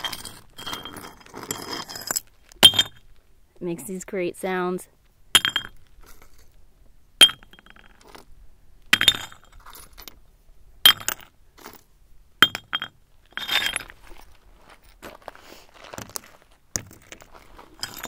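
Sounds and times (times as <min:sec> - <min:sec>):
crunching scrape: 0:00.0 - 0:02.5.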